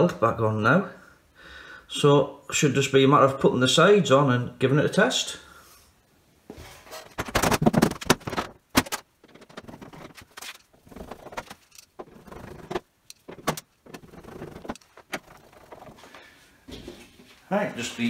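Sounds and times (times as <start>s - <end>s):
metal panel scraping and rattling: 6.6s - 16.1s.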